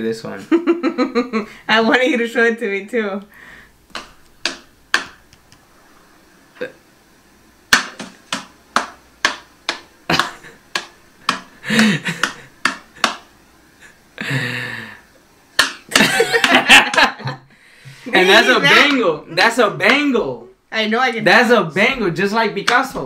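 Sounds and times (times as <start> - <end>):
cat slapping a hand: 12.1 - 13.2.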